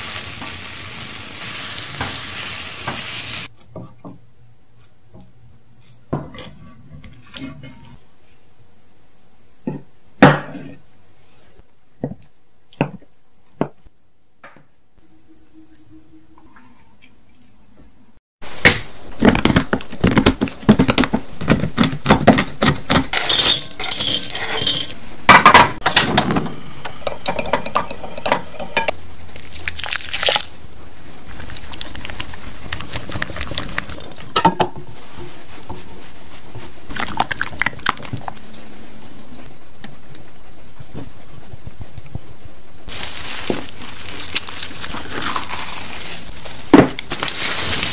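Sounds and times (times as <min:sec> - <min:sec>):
melted chocolate being stirred: 0:31.2 - 0:38.5, 0:42.9 - 0:47.9.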